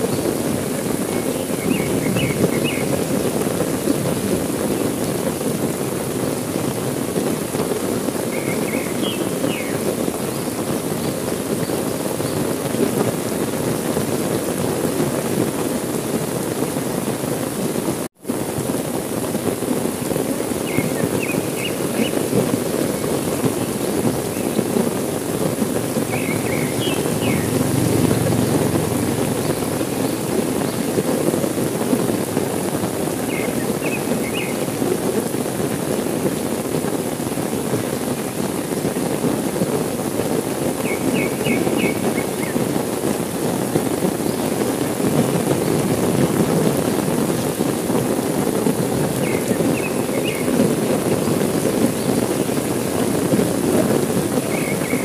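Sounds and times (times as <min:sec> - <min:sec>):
heavy rain falling: 0:00.0 - 0:55.0
high bird chirps: 0:08.4 - 0:09.8, 0:26.1 - 0:27.8.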